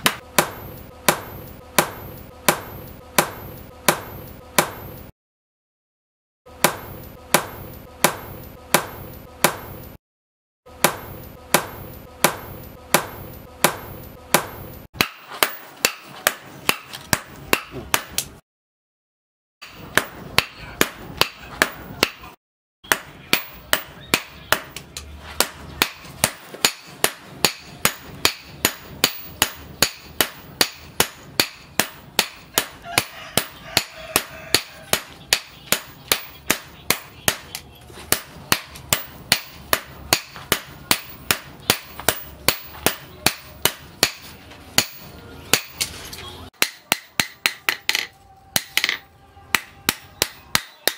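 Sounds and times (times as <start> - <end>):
hammer striking hot steel on anvil: 0.0 - 5.1, 6.5 - 10.0, 10.7 - 18.4, 19.6 - 45.9, 46.6 - 50.9.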